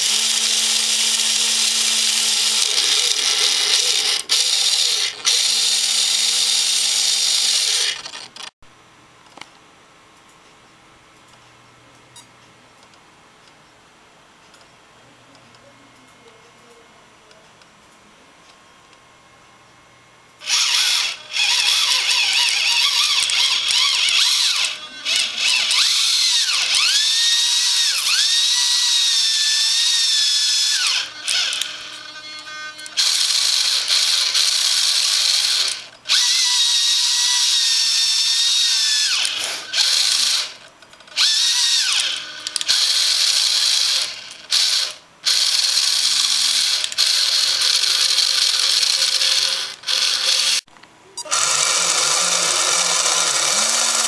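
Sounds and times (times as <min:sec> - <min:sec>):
electric winch motor whining: 0:00.0 - 0:08.5, 0:20.4 - 0:54.0.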